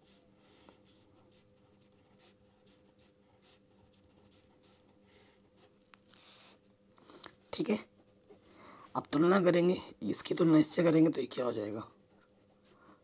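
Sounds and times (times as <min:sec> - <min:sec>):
pen scratching on paper: 0:00.0 - 0:06.6
low steady hum: 0:00.0 - 0:13.0.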